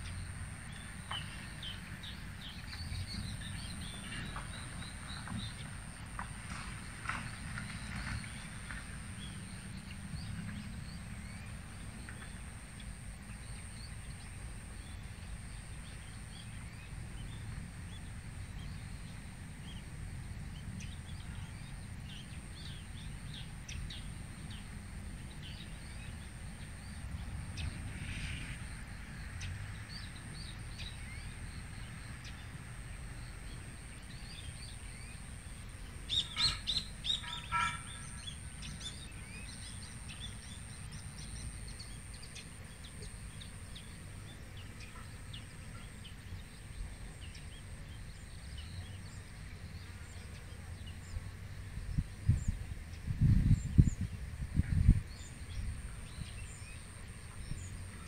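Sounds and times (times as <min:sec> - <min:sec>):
birds chirping: 0:28.6 - 0:54.1
sharp bird calls: 0:36.0 - 0:43.2.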